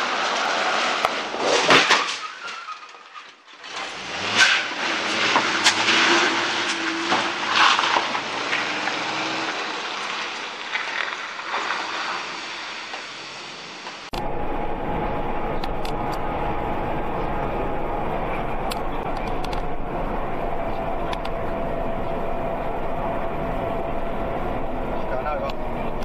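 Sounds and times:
metal bangs and scrapes: 0.0 - 11.9
car crash impact: 0.0 - 13.0
car engine running: 14.1 - 26.0.

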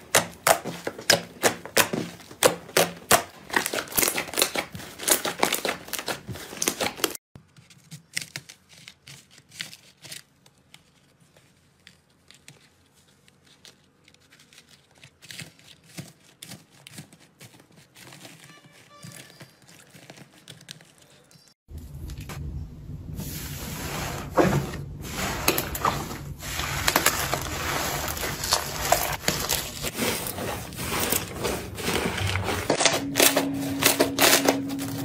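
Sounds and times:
soft slime crinkling: 7.5 - 21.5.

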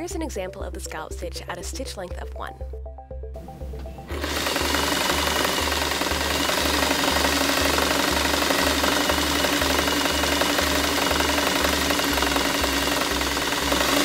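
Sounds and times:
sewing machine running: 4.1 - 14.0.

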